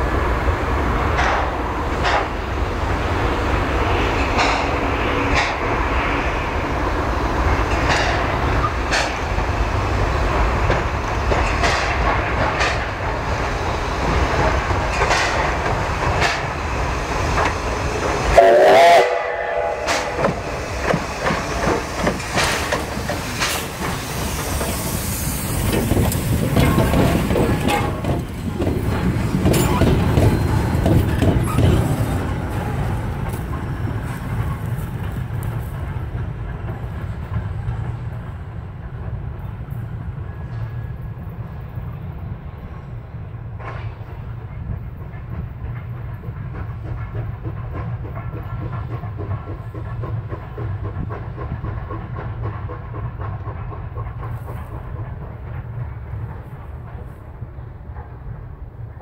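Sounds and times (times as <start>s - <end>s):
steam locomotive running: 0.0s - 59.0s
steam whistle blast: 18.3s - 20.4s.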